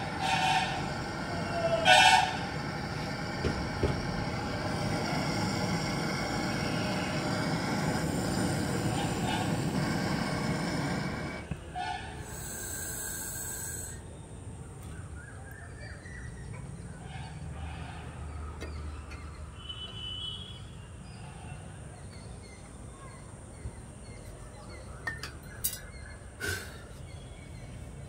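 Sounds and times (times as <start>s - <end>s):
torch flame hissing: 0.0s - 14.0s
short high hiss: 12.2s - 14.0s
faint birds chirping: 12.3s - 28.0s.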